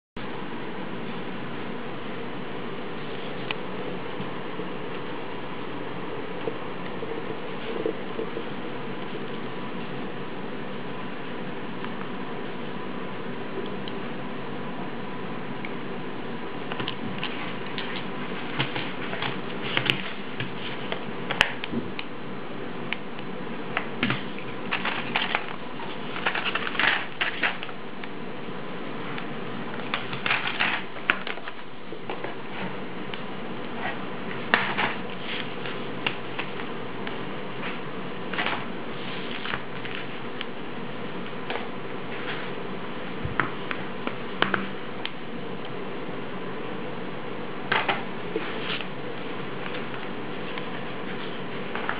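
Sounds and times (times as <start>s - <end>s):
steady low hum: 0.2s - 51.9s
packages clicking and clattering: 24.0s - 27.7s, 29.9s - 32.4s.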